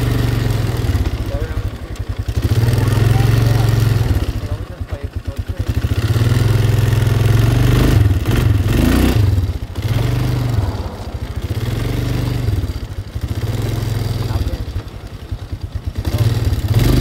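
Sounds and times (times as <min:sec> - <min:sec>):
quad bike engine revving: 0:00.0 - 0:17.0.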